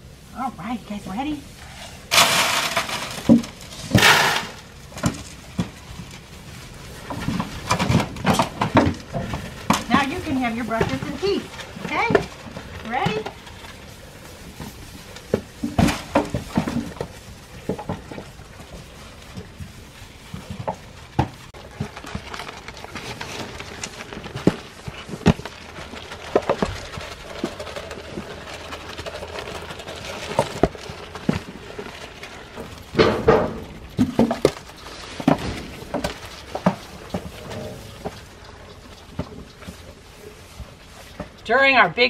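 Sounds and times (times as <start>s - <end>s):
sheep eating grain from feed pan: 0.0s - 42.0s.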